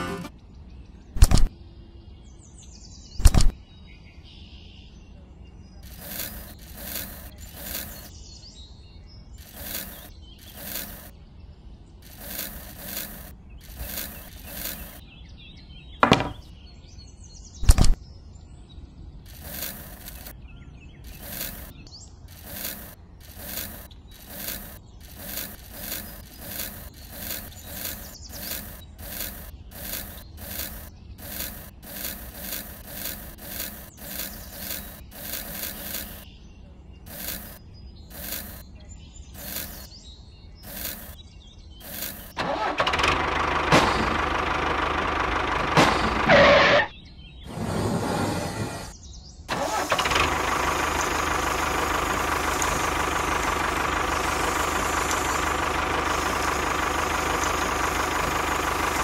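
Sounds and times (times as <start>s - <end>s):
gritty scraping in sand: 5.8s - 8.1s, 9.4s - 11.1s, 12.0s - 15.0s, 19.3s - 20.4s, 21.1s - 36.3s, 37.1s - 38.6s, 39.4s - 39.9s, 40.6s - 41.2s, 41.8s - 42.4s, 46.2s - 49.0s
sharp knocks: 16.0s - 16.5s.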